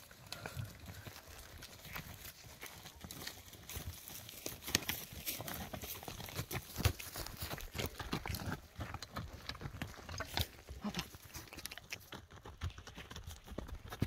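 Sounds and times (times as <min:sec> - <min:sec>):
hooves crunching undergrowth: 0:00.0 - 0:14.0.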